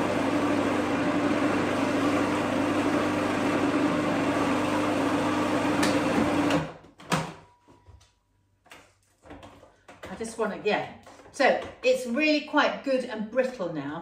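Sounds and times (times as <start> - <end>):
food processor motor running: 0.0 - 6.7.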